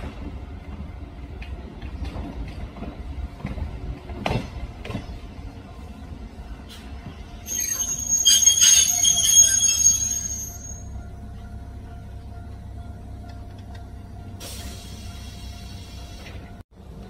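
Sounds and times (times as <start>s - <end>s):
train hum: 0.0s - 17.0s
train brakes squealing: 6.7s - 11.0s, 14.4s - 16.5s.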